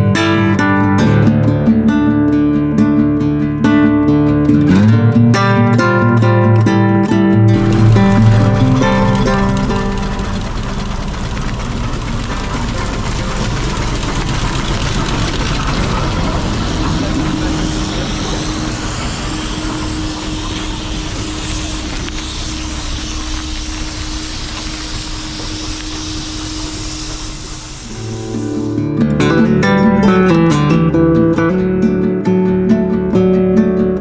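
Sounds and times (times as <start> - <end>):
steady hum: 4.5 - 31.7
steam engines running: 7.4 - 30.9.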